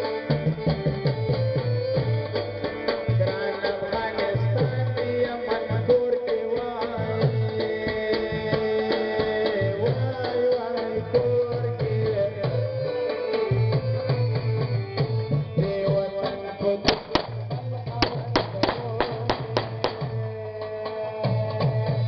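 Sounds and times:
sustained melody line: 0.0s - 21.0s
hand drum beat: 16.8s - 20.3s.

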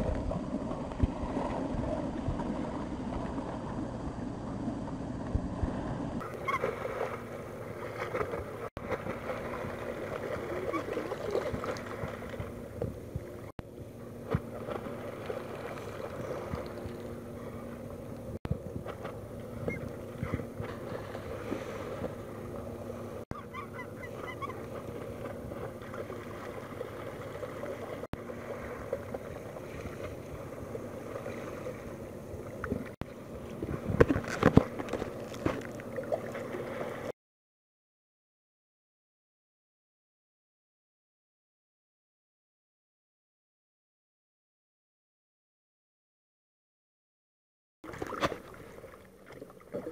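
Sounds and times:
seabirds calling: 6.2s - 8.7s, 9.4s - 18.3s, 19.2s - 32.6s.

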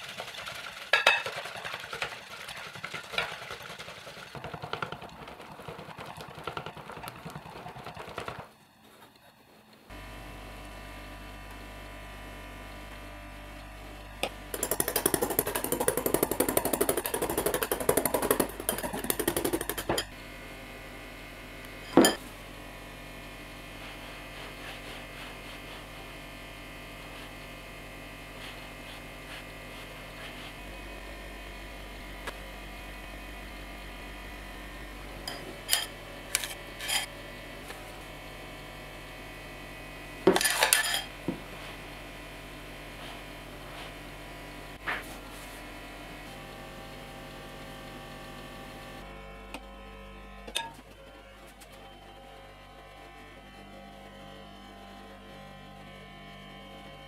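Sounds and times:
utensil rattling against glass bowl: 0.2s - 4.3s, 14.6s - 20.1s
steady low hum: 8.8s - 57.0s.

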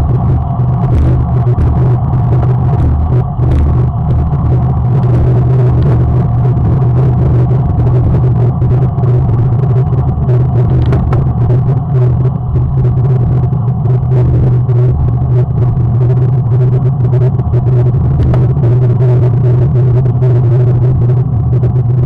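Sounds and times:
wind buffeting microphone: 0.0s - 16.3s.

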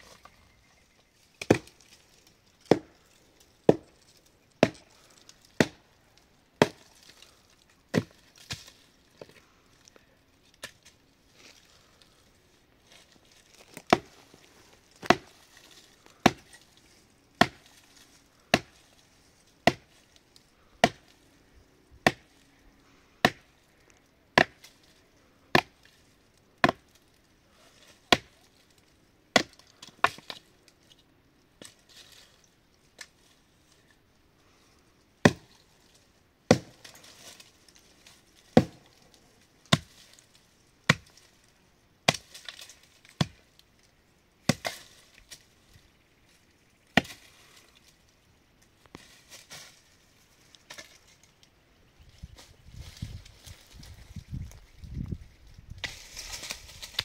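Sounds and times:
axe chopping wood: 1.4s - 1.8s, 2.6s - 3.0s, 3.7s - 3.9s, 4.6s - 4.8s, 5.6s - 5.8s, 6.6s - 7.1s, 7.9s - 8.7s, 13.8s - 14.2s, 15.0s - 15.4s, 16.1s - 16.6s, 17.4s - 17.8s, 18.5s - 18.8s, 19.6s - 20.0s, 20.8s - 21.1s, 22.0s - 22.3s, 23.2s - 23.5s, 24.4s - 24.7s, 25.5s - 25.8s, 26.6s - 26.9s, 28.1s - 28.4s, 29.3s - 30.4s, 35.2s - 35.6s, 36.5s - 37.4s, 38.5s - 39.0s, 39.7s - 40.0s, 40.9s - 41.2s, 42.1s - 43.4s, 44.4s - 44.9s, 46.9s - 47.2s.

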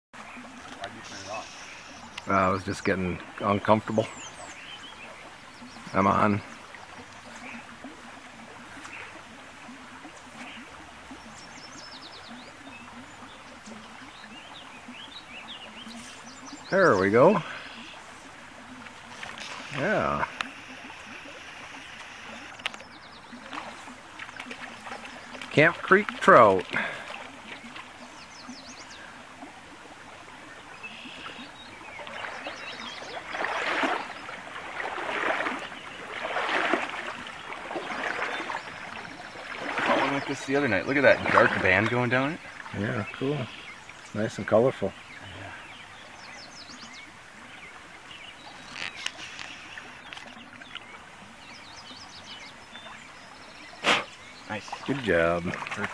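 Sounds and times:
creek water running: 0.1s - 55.9s
small birds chirping: 0.2s - 29.3s, 30.3s - 55.9s
fish splashing at surface: 32.0s - 40.5s.

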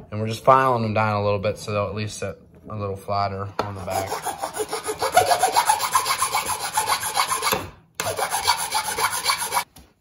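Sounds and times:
metal file scraping nails: 3.8s - 9.7s.

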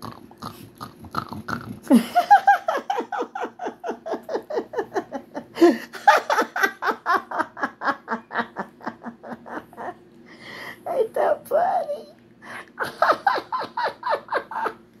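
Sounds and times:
woman laughing: 1.9s - 10.0s, 12.6s - 14.8s.

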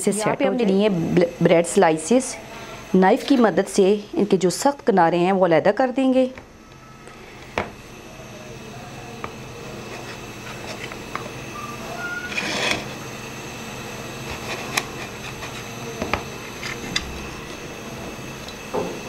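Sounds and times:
steady low hum: 0.0s - 19.0s
knife cutting bread crusts: 14.2s - 15.7s.

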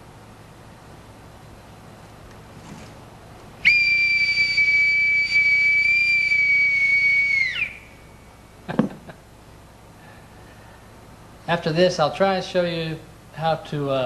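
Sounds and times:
high bosun's pipe whistle: 3.6s - 8.4s.

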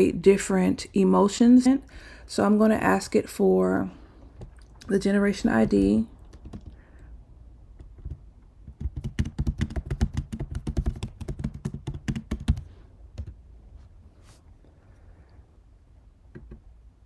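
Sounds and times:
typing on a computer keyboard: 6.2s - 6.8s, 7.8s - 13.4s.

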